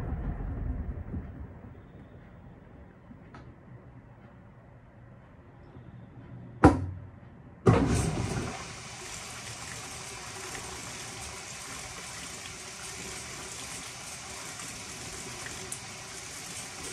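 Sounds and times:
water gushing into tub: 0:07.7 - 0:16.9.

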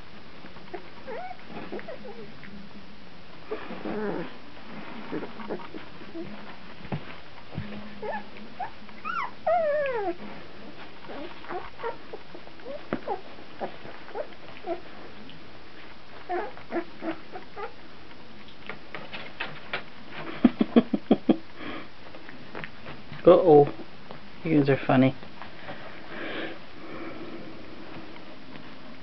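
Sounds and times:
puppy falling whine: 0:00.6 - 0:02.5, 0:03.5 - 0:07.0, 0:07.6 - 0:14.9, 0:16.1 - 0:17.8
puppies whimpering and squeaking: 0:00.7 - 0:02.4, 0:03.5 - 0:04.3, 0:04.9 - 0:06.4, 0:08.0 - 0:14.9, 0:16.1 - 0:17.8.

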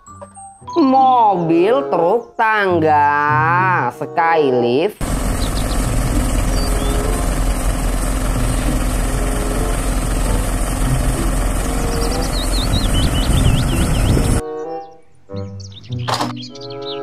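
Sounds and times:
small birds chirping: 0:05.0 - 0:07.4, 0:11.4 - 0:17.0
engine and hydraulics rumbling: 0:05.0 - 0:14.4.

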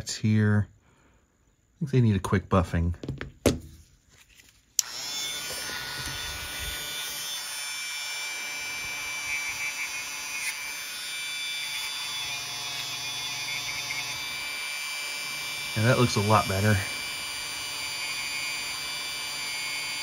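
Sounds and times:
rotary tool whining: 0:04.8 - 0:20.0.

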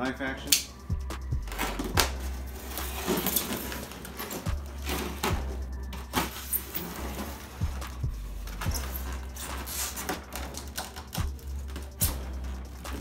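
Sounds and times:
knife scraping tape and foam: 0:08.6 - 0:13.0.

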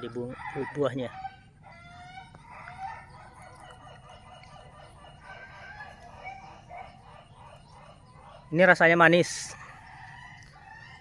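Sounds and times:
rooster crowing: 0:00.0 - 0:03.2, 0:09.6 - 0:11.0
hens clucking: 0:00.0 - 0:11.0.

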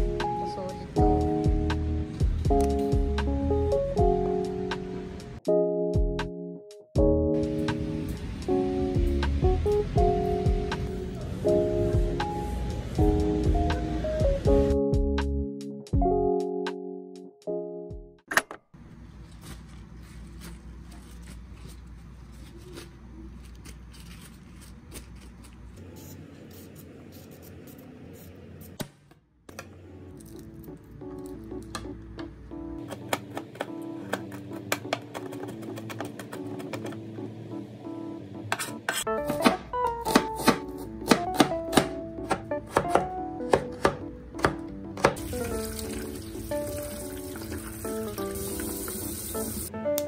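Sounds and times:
soft background music: 0:00.0 - 0:18.2, 0:29.6 - 0:50.0
paper towel rustling: 0:19.1 - 0:26.1
peeler scraping carrot: 0:19.4 - 0:28.8
knife chopping on cutting board: 0:38.5 - 0:45.2
tap water running into sink: 0:45.2 - 0:49.7.

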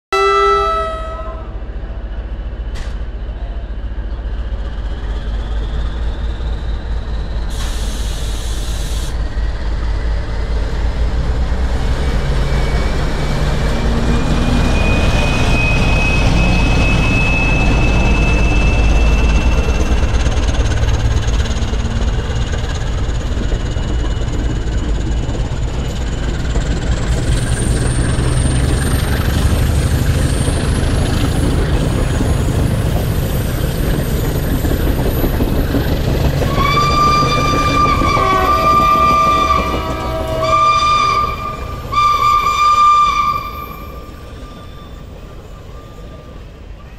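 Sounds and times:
diesel locomotive engine rumble: 0:00.1 - 0:46.9
air hiss: 0:07.5 - 0:09.2.

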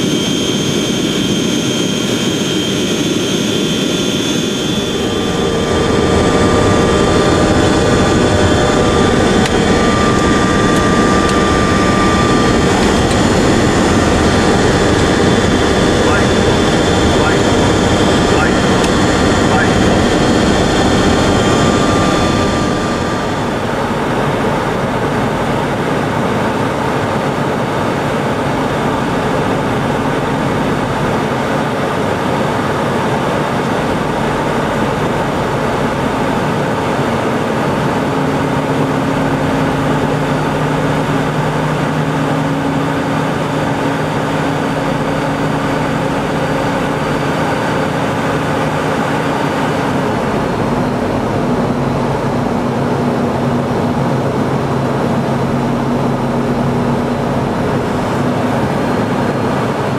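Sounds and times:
high whining tones: 0:00.0 - 0:25.7
jet aircraft cabin noise: 0:00.0 - 0:59.9
low steady hum: 0:03.4 - 0:25.8.

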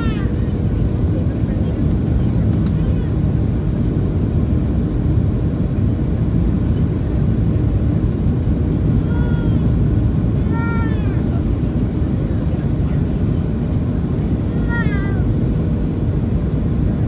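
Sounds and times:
airplane cabin noise: 0:00.0 - 0:17.0.

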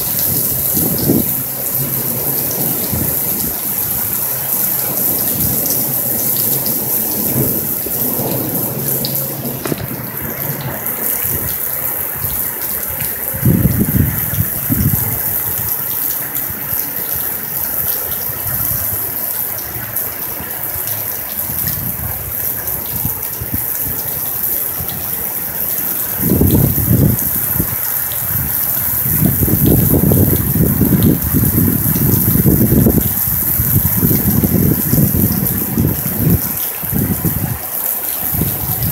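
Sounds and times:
distant thunder rolling: 0:00.0 - 0:38.9
heavy rain hissing: 0:00.0 - 0:38.9.

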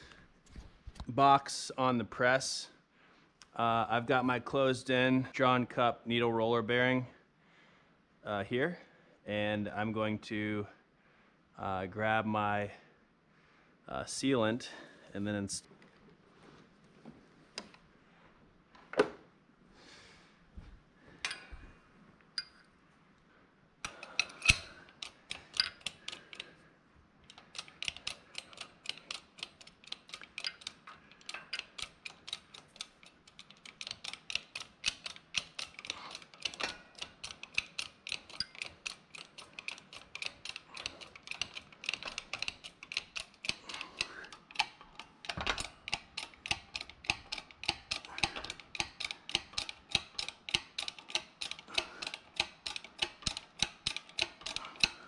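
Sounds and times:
bottle jack pumping clicks: 0:23.8 - 0:26.5, 0:27.3 - 0:55.0.

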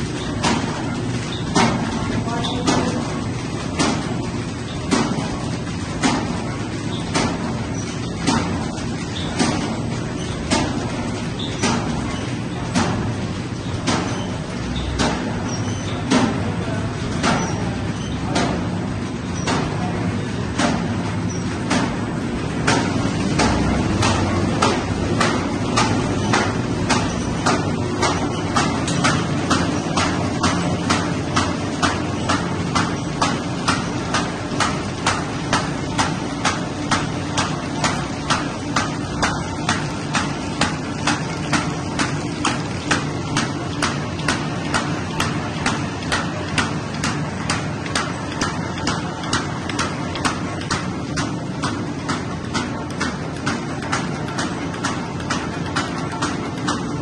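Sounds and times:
machine clacking: 0:00.0 - 0:57.0.

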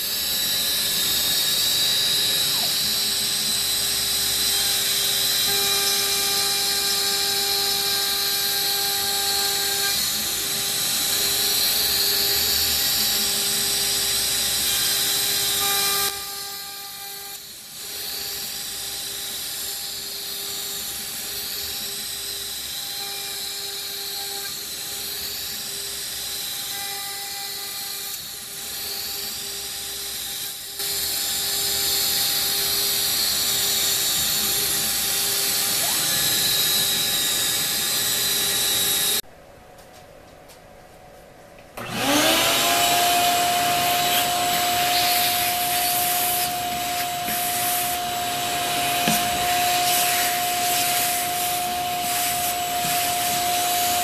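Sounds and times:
router spindle cutting wood: 0:00.0 - 0:39.2, 0:41.8 - 0:54.0.

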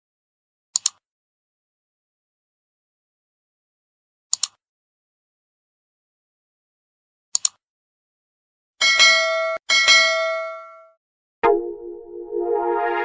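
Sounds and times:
double mouse click: 0:00.8 - 0:01.0, 0:04.3 - 0:04.6, 0:07.3 - 0:07.6
bell chime: 0:08.8 - 0:13.0.

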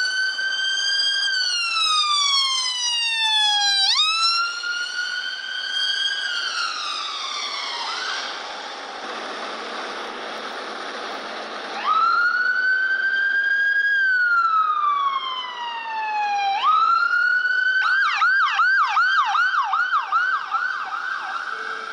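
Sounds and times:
ambulance siren wailing and yelping: 0:00.0 - 0:09.3, 0:09.9 - 0:21.9
traffic rush: 0:00.0 - 0:21.9.

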